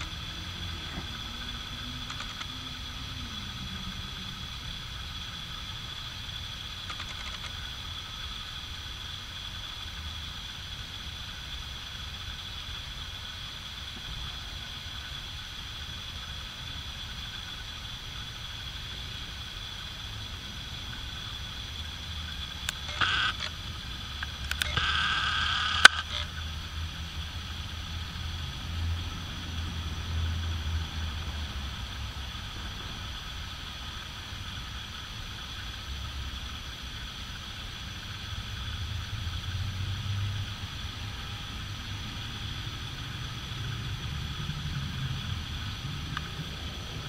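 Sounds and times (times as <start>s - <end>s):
high-pitched whine: 0.0s - 47.0s
steady low hum: 0.0s - 47.0s.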